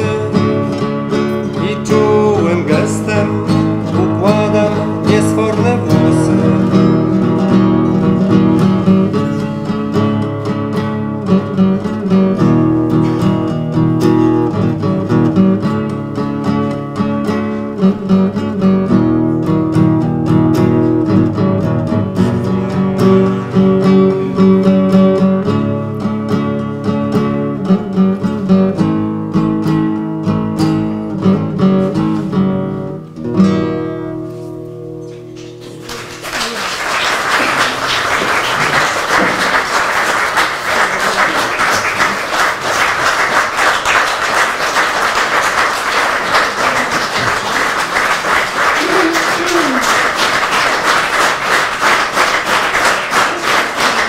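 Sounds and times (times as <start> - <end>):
guitar piece: 0.0 - 54.0
audience applauding: 35.4 - 54.0.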